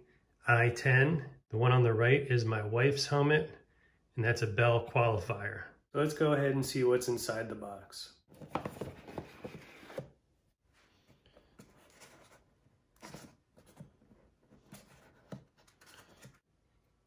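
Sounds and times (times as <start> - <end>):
hands handling cardboard box: 8.3 - 10.2, 10.8 - 16.4.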